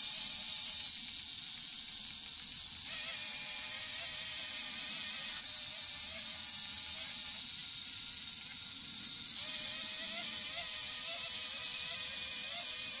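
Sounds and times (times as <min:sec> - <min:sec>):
electric motors whining: 0:02.8 - 0:13.0.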